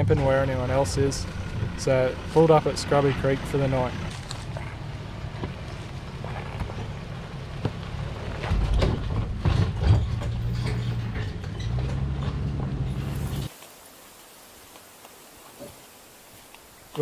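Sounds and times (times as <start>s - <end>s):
engine running at low speed: 0.0s - 13.5s
vehicle and trailer rattling: 0.0s - 13.6s.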